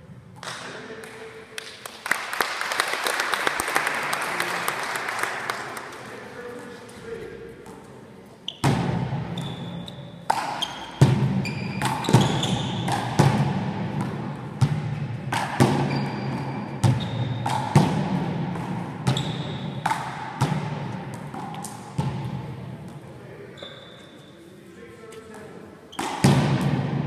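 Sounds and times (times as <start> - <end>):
sneakers squeaking on gym floor: 7.6 - 13.4, 15.5 - 17.8, 19.0 - 22.3, 23.5 - 24.6, 25.9 - 26.4
rubber ball hits echoing: 8.6 - 9.5, 10.2 - 22.8, 26.0 - 27.0.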